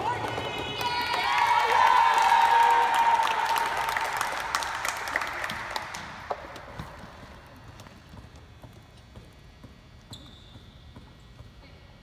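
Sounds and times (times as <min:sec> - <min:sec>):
children applauding: 0:01.0 - 0:06.2.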